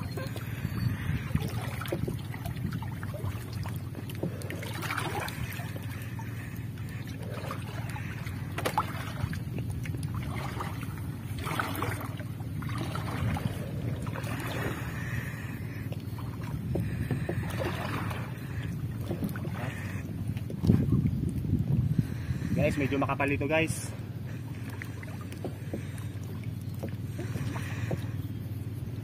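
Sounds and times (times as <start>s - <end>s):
net moving through water: 0.0s - 15.3s, 16.0s - 21.1s
water sloshing around legs: 0.0s - 22.2s, 22.8s - 29.0s
steady low rumble: 0.0s - 29.0s.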